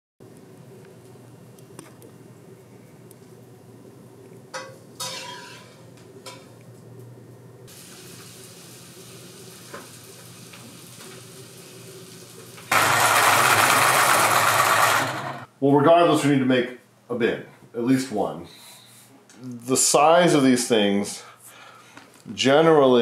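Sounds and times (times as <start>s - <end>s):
electric pencil sharpener grinding: 12.7s - 15.5s.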